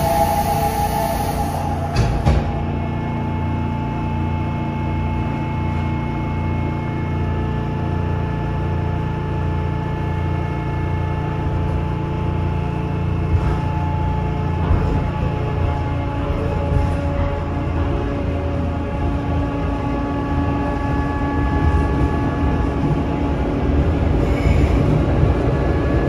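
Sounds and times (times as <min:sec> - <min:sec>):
subway doors closing with knocks: 0:00.0 - 0:06.3, 0:13.1 - 0:26.0
low pulsing throb: 0:00.0 - 0:08.1
train car mechanical hum: 0:00.0 - 0:26.0.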